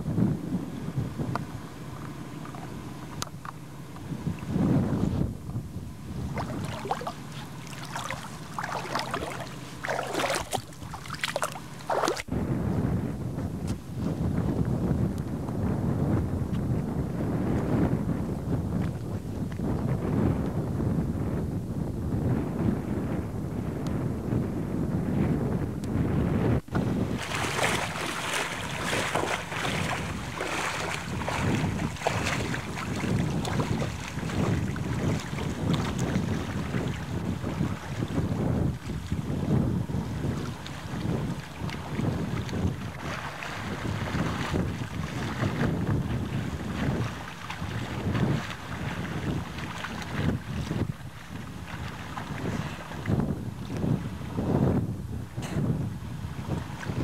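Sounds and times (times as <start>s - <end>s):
sea water splashing and gurgling: 0.0s - 13.0s, 26.0s - 57.0s
wind on microphone: 0.0s - 57.0s.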